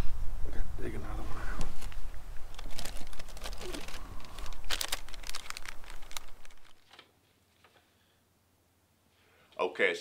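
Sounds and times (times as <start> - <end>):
plastic bag crinkling: 1.7 - 7.0.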